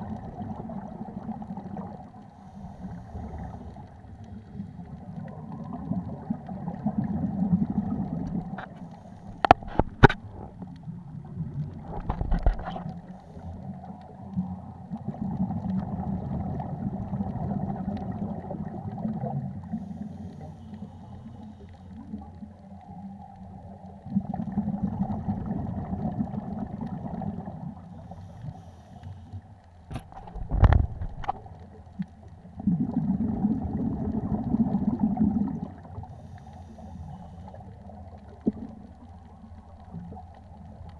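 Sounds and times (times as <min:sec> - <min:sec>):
muffled regulator exhaust bubbles: 0:00.0 - 0:20.5, 0:29.8 - 0:40.9
diver breathing underwater: 0:02.3 - 0:04.0, 0:19.6 - 0:22.0, 0:27.9 - 0:30.0, 0:36.0 - 0:37.8.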